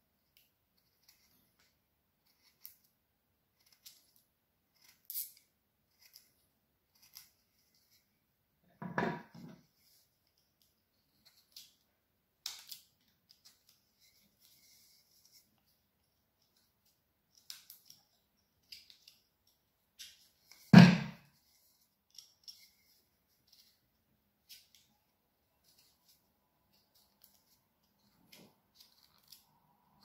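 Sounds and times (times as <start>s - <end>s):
loud knock: 8.8s - 9.2s, 20.8s - 21.2s.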